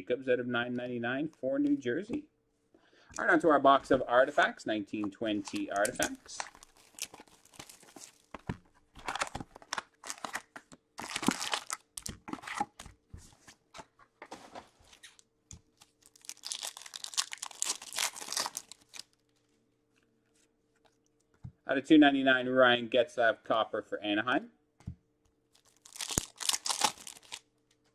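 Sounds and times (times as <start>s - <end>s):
cards and cardboard box handled: 5.2s - 19.0s
foil wrappers crinkling and tearing: 5.5s - 8.4s, 9.0s - 12.2s, 15.0s - 19.5s, 25.5s - 27.4s.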